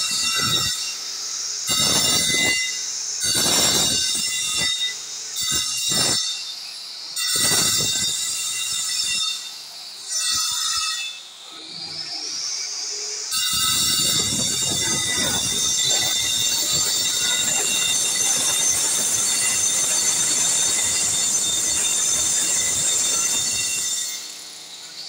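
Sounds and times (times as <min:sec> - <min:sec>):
angle grinder cutting stone: 0:00.0 - 0:25.0.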